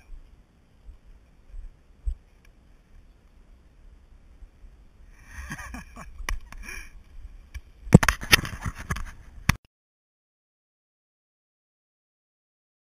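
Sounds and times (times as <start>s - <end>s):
camera handling knocks and rubbing: 8.0s - 9.2s.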